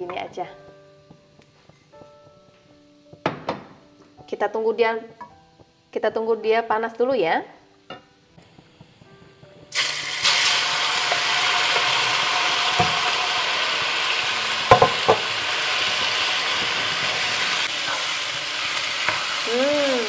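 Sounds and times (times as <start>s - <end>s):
chicken frying sizzle: 8.4s - 20.0s.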